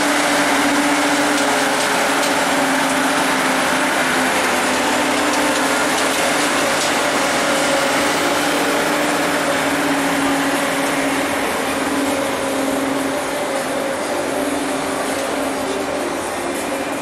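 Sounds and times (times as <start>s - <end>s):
ice resurfacer engine hum: 0.0s - 17.0s.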